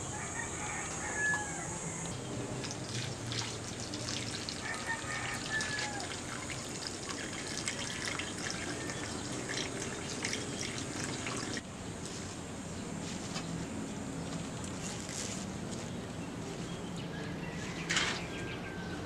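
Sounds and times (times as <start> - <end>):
water pouring into metal wok: 2.7 - 11.6.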